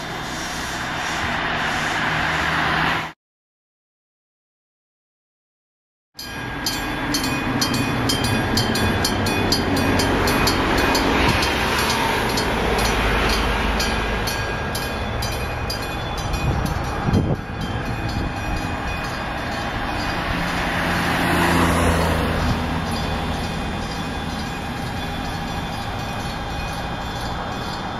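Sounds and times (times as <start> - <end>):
railway scene ambience: 0.0 - 3.2, 6.2 - 27.9
level crossing bell ringing: 6.2 - 27.9.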